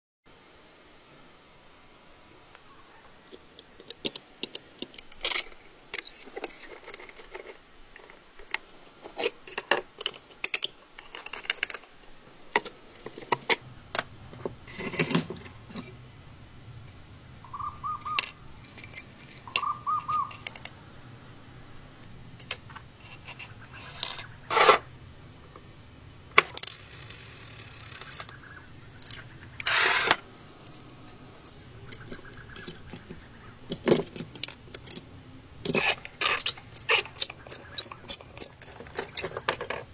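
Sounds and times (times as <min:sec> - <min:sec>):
short squeaks: 0:06.0 - 0:06.9, 0:29.0 - 0:33.2, 0:35.6 - 0:39.9
screwdriver scraping metal: 0:29.6 - 0:30.3, 0:35.7 - 0:39.7.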